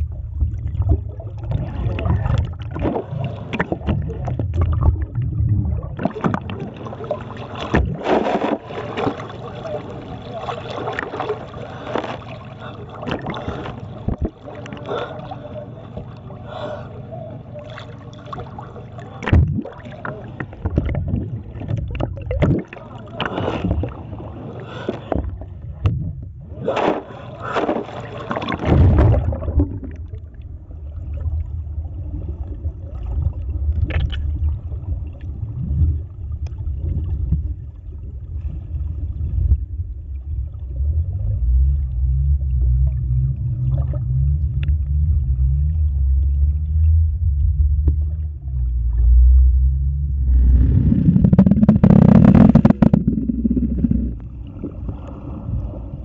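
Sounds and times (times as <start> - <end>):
muffled underwater rumble: 0.0 - 56.0
sea water splashing: 0.0 - 56.0.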